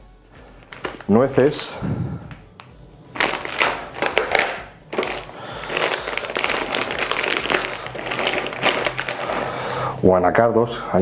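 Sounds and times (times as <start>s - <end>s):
crinkling handling noise: 0.4s - 1.5s, 2.3s - 9.8s
walnuts clicking: 2.3s - 9.3s.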